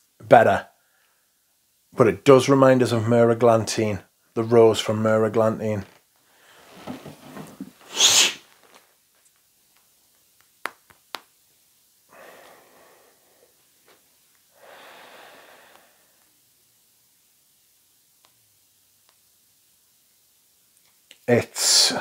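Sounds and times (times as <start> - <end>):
man sniffing: 7.8 - 8.5, 12.1 - 13.5
soft slow breaths: 12.0 - 16.4.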